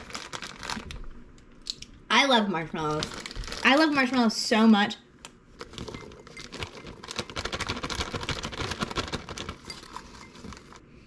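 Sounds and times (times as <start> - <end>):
plastic bag crinkling: 0.0 - 1.1, 2.7 - 4.2, 5.5 - 10.9.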